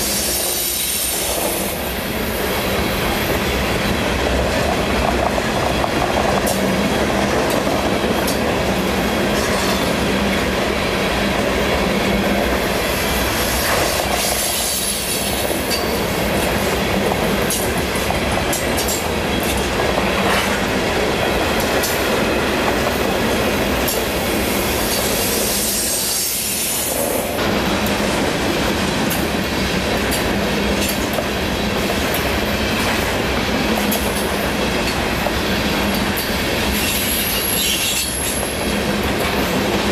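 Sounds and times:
train cars rumbling and rattling: 0:00.0 - 0:39.9
wheels clacking over rail joints: 0:03.4 - 0:10.7, 0:15.3 - 0:24.2
high wheel squeal: 0:36.7 - 0:38.6.

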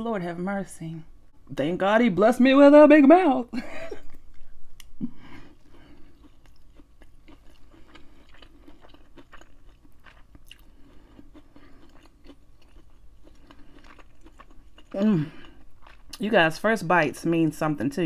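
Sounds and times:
close chewing: 0:05.5 - 0:16.2.

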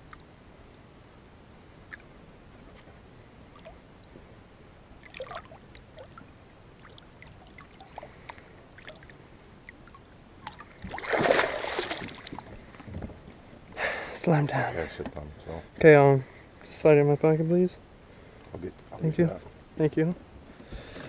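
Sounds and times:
water lapping and splashing: 0:03.5 - 0:04.2, 0:05.0 - 0:13.0.

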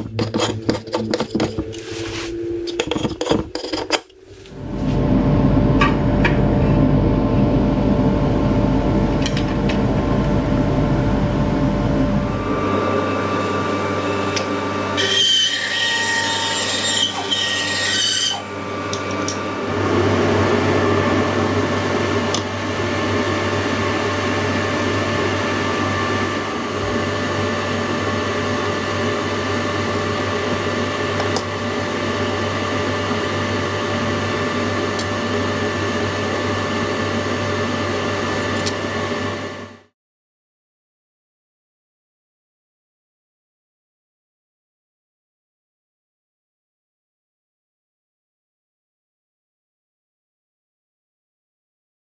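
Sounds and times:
power tool running: 0:08.0 - 0:39.5.

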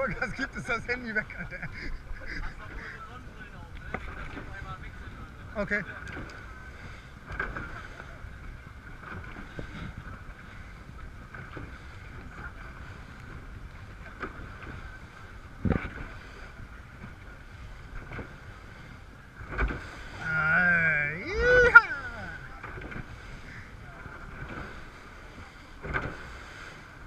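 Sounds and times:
outboard engines running: 0:00.0 - 0:27.0
water against hull: 0:00.0 - 0:27.0
wind noise on microphone: 0:00.0 - 0:27.0
thump and light knocks: 0:19.4 - 0:19.9.

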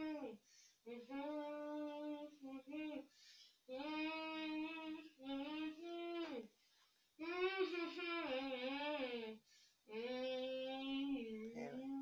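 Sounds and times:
boy singing unaccompanied: 0:00.0 - 0:03.1, 0:03.7 - 0:06.5, 0:07.2 - 0:12.0
boy breathing in: 0:03.1 - 0:03.7, 0:09.4 - 0:09.9.

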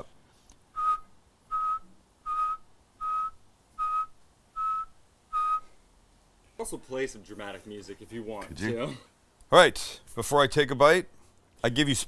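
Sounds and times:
person whistling short notes: 0:00.7 - 0:05.8.

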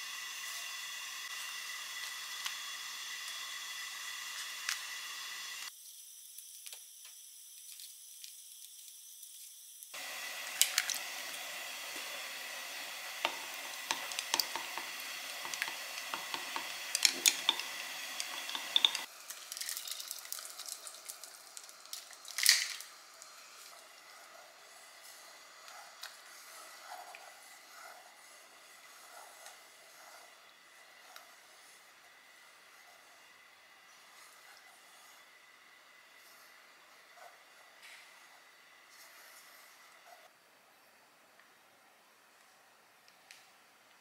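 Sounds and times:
pot hissing on burner: 0:00.0 - 0:40.4
dumplings simmering in pot: 0:09.9 - 0:38.9
egg beaten in glass cup: 0:10.0 - 0:22.3.

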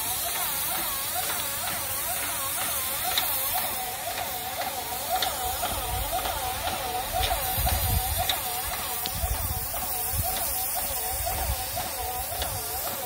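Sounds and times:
paint sprayer hissing: 0:00.0 - 0:13.0.

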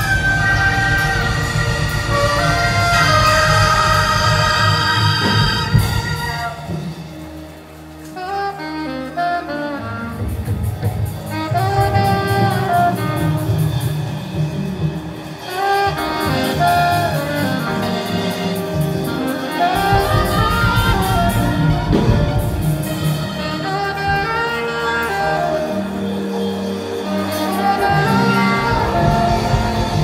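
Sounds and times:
alto saxophone melody: 0:00.0 - 0:30.0
steady beat: 0:10.2 - 0:30.0
bass line: 0:16.0 - 0:25.8.

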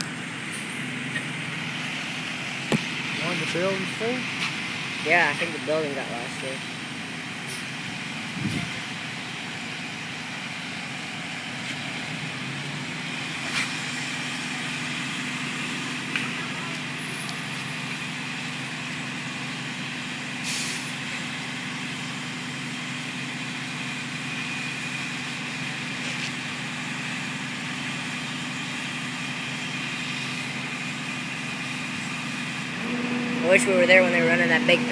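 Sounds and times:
heavy vehicle engines humming: 0:00.0 - 0:34.9
traffic: 0:00.0 - 0:34.9
short hiss: 0:20.4 - 0:20.9.

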